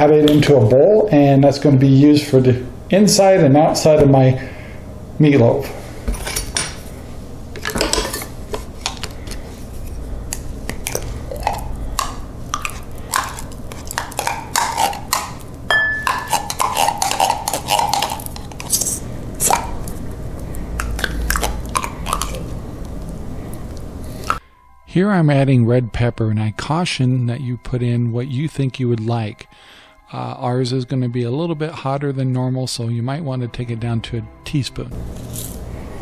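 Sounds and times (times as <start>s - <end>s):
metal spoon scraping tin can: 16.0s - 19.6s.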